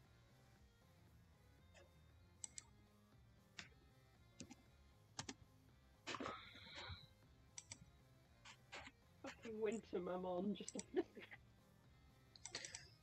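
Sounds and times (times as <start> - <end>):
keyboard and mouse clicks: 2.4 - 2.7, 4.4 - 4.6, 5.2 - 5.4, 7.6 - 7.9, 12.4 - 13.0.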